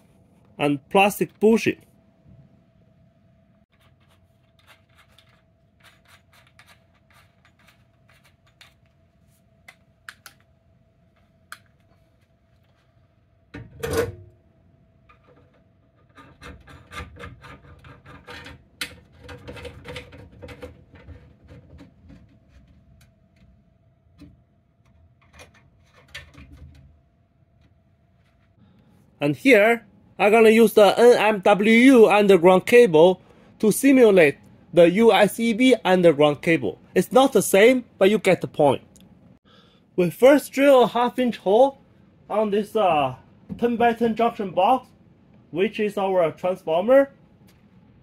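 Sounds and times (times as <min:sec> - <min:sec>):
rubbing and scraping: 0:03.7 - 0:09.4.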